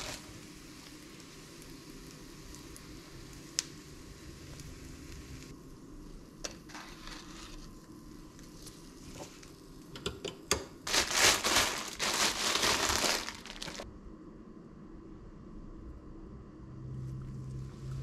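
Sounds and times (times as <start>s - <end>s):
plastic bag crinkling: 10.8s - 13.8s.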